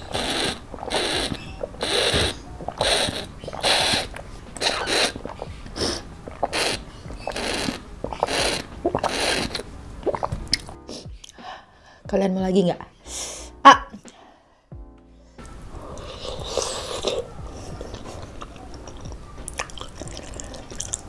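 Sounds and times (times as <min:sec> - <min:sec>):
sucking through a straw: 0:00.0 - 0:10.8, 0:15.8 - 0:21.0.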